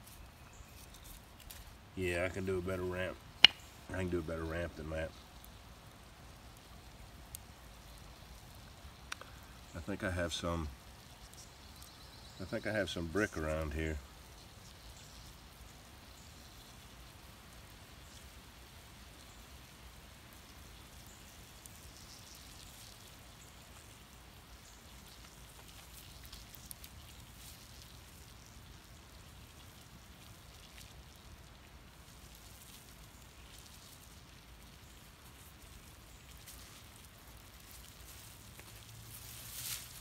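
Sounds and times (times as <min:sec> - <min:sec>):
wood fire crackling and hissing: 0:00.0 - 0:40.0
small ticks: 0:05.3 - 0:09.7, 0:10.8 - 0:12.4, 0:14.1 - 0:39.9.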